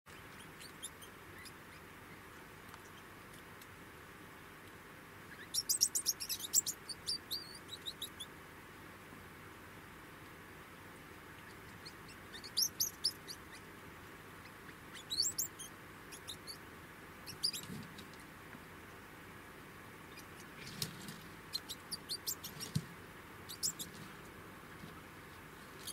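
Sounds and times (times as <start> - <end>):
degus squeaking: 11.4 - 13.7, 14.4 - 16.6, 17.3 - 17.9, 23.5 - 24.1.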